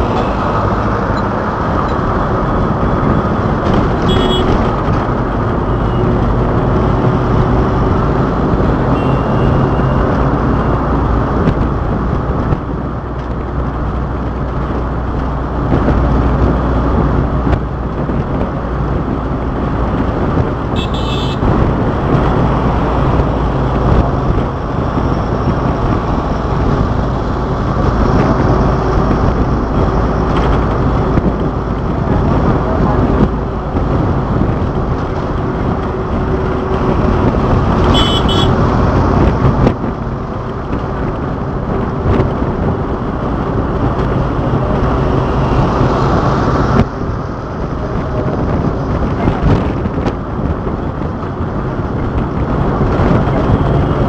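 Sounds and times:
vehicle engine and road noise: 0.0s - 54.0s
short horn toot: 4.0s - 4.6s, 37.9s - 38.6s.

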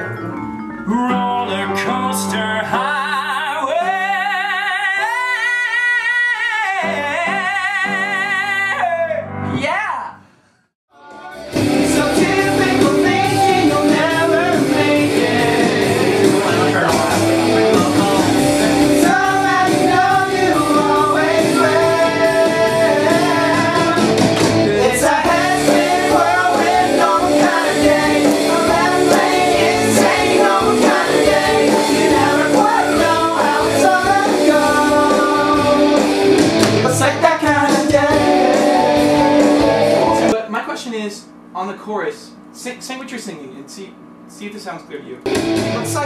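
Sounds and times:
pop-rock song with singer: 11.1s - 40.4s.

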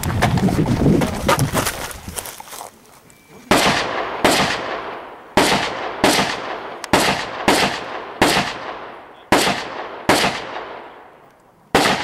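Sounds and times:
rifle shots echoing: 3.5s - 11.1s, 11.7s - 12.0s.

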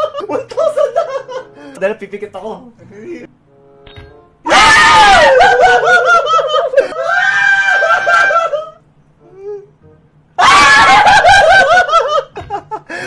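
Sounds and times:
men screaming and cheering: 4.5s - 8.8s, 10.4s - 13.0s.

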